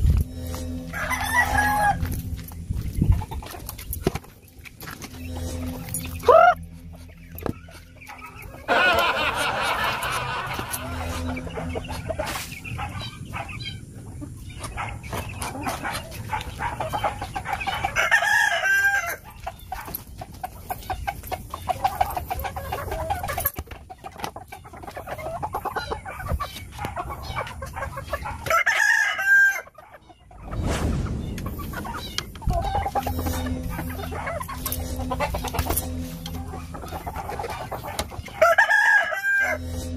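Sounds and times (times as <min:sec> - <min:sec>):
chickens clucking: 0:00.0 - 0:39.9
rooster crowing: 0:00.3 - 0:02.1, 0:08.7 - 0:12.0, 0:17.9 - 0:19.2, 0:28.5 - 0:29.7, 0:38.3 - 0:39.7.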